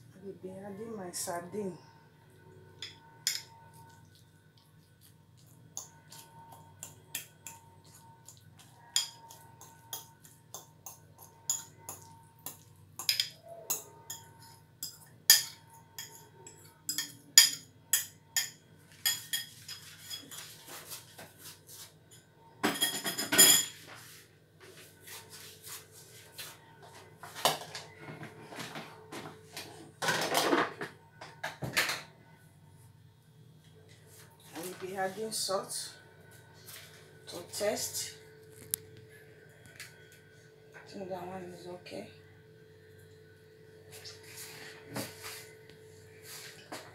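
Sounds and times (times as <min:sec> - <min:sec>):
metal utensils clinking on dishes: 0:02.8 - 0:03.6, 0:09.0 - 0:20.5, 0:22.1 - 0:23.9.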